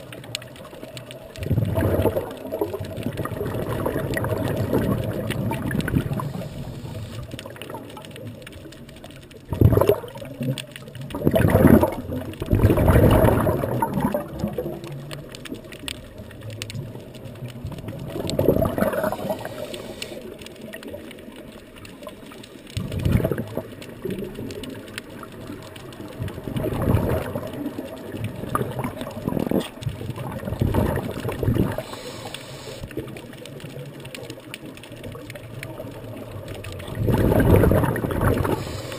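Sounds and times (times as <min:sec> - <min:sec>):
exhaled bubbles rushing: 0:00.0 - 0:38.9
regulator hiss: 0:19.2 - 0:20.3, 0:31.8 - 0:32.9, 0:38.5 - 0:38.9.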